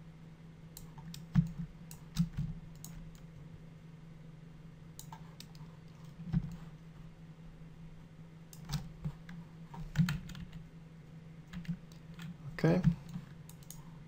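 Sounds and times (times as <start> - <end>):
low electrical hum: 0.0 - 14.0
computer keyboard and mouse clicks: 0.8 - 3.3, 5.0 - 6.6, 8.5 - 10.6, 11.5 - 13.8.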